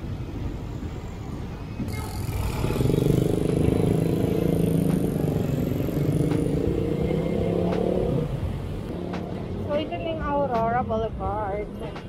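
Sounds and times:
slow city traffic: 0:00.0 - 0:12.0
vehicle engine humming: 0:00.0 - 0:12.0.

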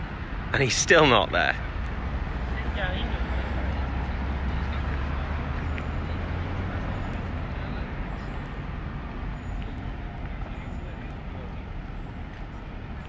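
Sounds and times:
town traffic noise: 0:00.0 - 0:13.0.

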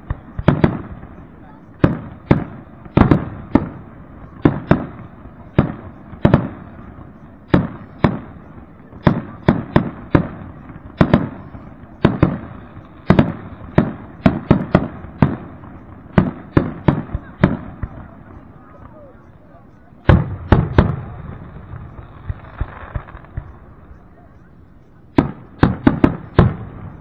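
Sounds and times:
fireworks bursting: 0:00.0 - 0:27.0.

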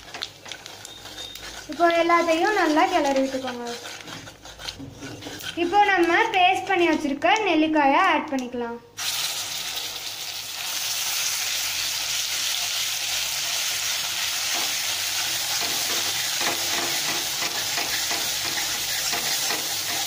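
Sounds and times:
paste sizzling in hot oil: 0:00.0 - 0:07.0, 0:09.0 - 0:20.0
metal spoon scraping pan: 0:00.0 - 0:07.2, 0:14.5 - 0:20.0.

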